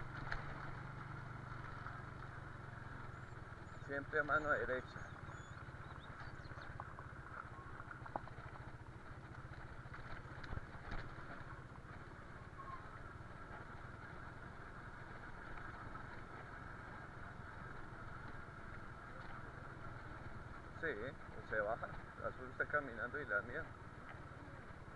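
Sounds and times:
small motorcycle engine running: 0.0s - 24.9s
bike knocking over rough track: 6.1s - 12.0s.

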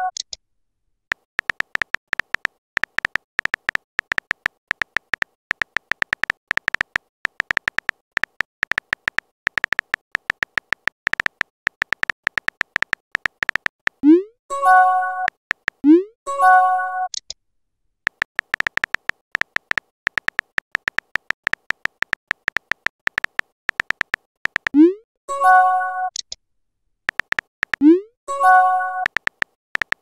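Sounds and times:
keyboard tap clicks: 1.1s - 14.0s, 15.3s - 15.8s, 18.1s - 24.8s, 27.1s - 27.9s, 29.0s - 30.0s.

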